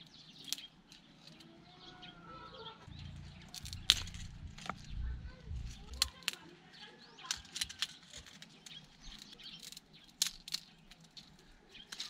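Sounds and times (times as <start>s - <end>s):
birds chirping: 0.0s - 12.0s
cord clicks and rustles: 3.0s - 6.5s, 7.2s - 12.0s.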